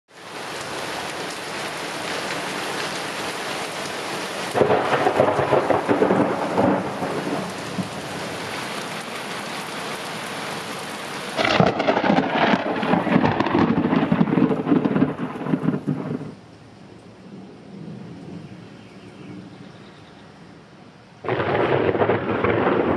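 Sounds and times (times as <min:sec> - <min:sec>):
steady rain hiss: 0:00.1 - 0:22.9
thunder cracking and rumbling: 0:04.5 - 0:08.3, 0:11.4 - 0:18.7, 0:21.2 - 0:22.9.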